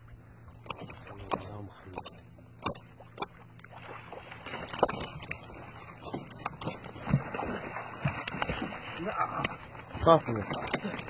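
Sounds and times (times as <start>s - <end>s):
water splashing and dripping: 2.6s - 11.0s.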